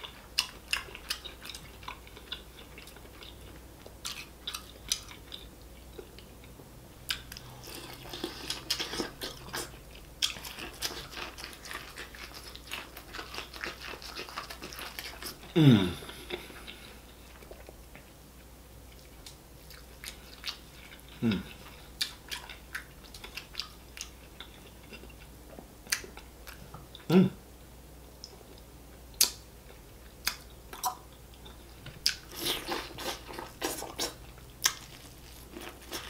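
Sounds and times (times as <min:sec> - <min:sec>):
chewing corn on the cob: 0:00.0 - 0:06.3, 0:07.1 - 0:18.0, 0:30.1 - 0:36.0.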